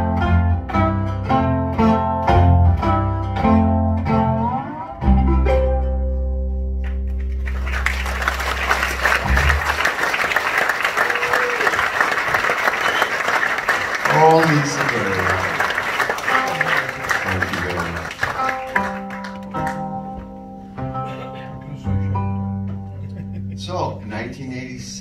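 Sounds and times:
slide guitar playing blues: 0.0 - 9.9, 15.0 - 24.4
audience applause: 7.2 - 19.9.

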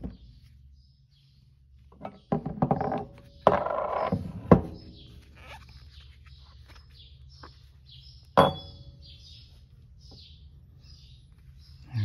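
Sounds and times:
birds chirping faintly: 0.0 - 12.0
metal clink on wooden bench: 8.4 - 8.9.

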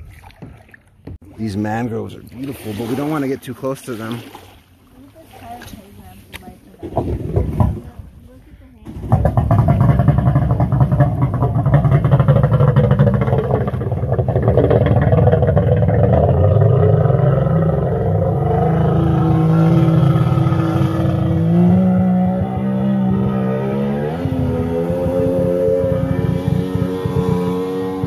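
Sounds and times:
jet ski engine running hard: 8.9 - 28.0.

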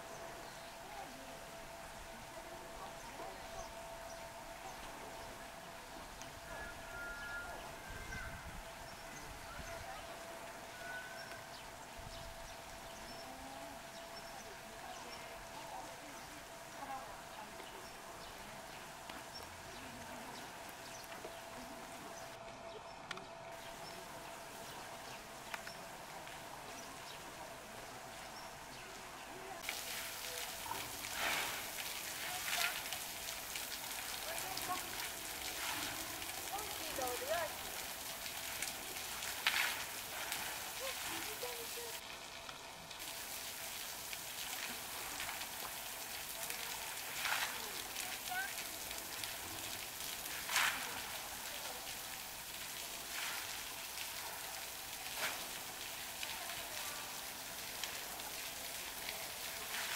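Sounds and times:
background hiss: 23.5 - 59.9
water jet splashing: 23.6 - 59.9.

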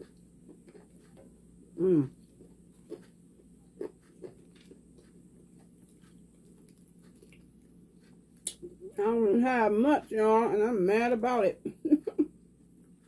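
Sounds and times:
low steady hum: 0.0 - 13.0
mouth clicks and smacks eating: 2.2 - 8.8.

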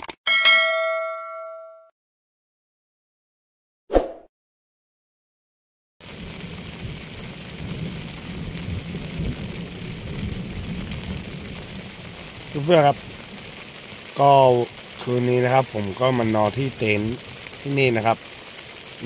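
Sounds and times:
steady rain: 6.0 - 19.0.

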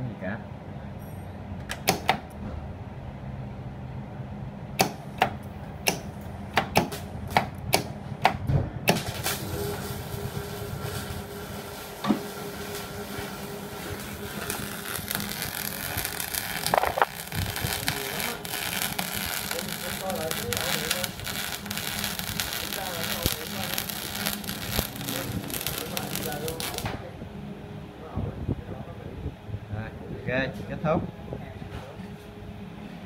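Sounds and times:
sharp switching clicks: 4.8 - 6.9
welding arc crackling and hissing: 8.9 - 26.9
welder humming: 9.0 - 27.0
faint steady whine: 9.4 - 31.5.

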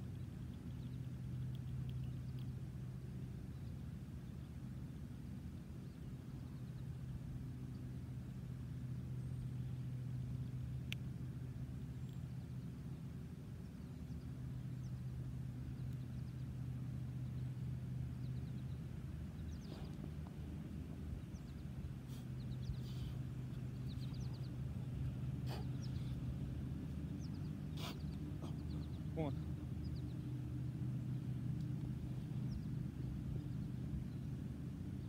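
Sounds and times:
low mechanical drone: 0.0 - 35.0
bird chirps: 21.2 - 24.8, 27.0 - 30.3.

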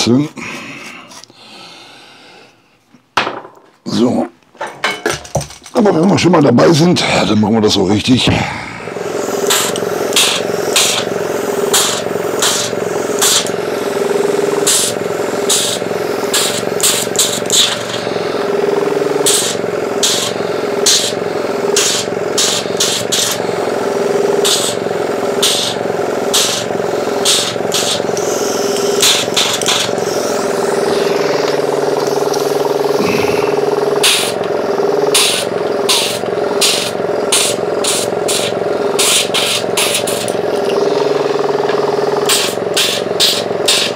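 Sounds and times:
air compressor humming: 0.0 - 3.6, 4.6 - 43.9
compressed air blasts: 8.8 - 43.9.

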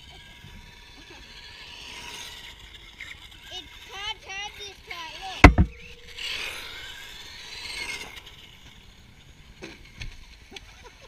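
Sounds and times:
electric motor whining: 0.0 - 10.6
tyres hissing on asphalt: 0.0 - 11.0
sharp knocks: 5.4 - 6.0.

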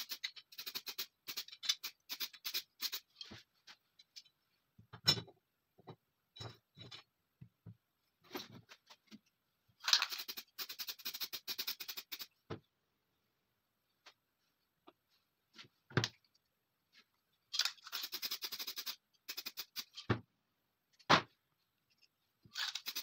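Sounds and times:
small metal parts clicking: 0.0 - 3.3, 9.8 - 12.3, 17.5 - 20.1, 21.9 - 23.0.

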